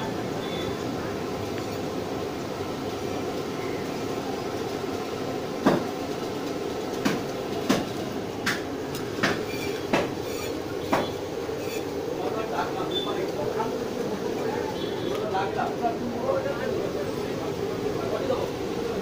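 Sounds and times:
market background hum: 0.0s - 19.0s
sharp knocks and clicks: 7.0s - 10.2s.

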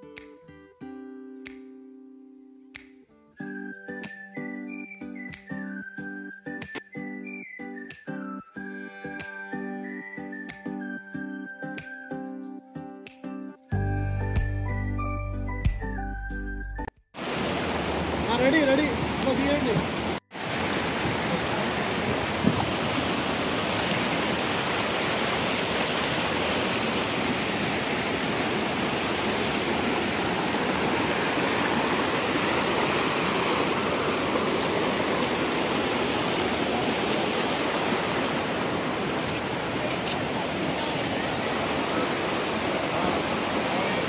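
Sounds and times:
waterfall rushing: 17.2s - 44.0s.

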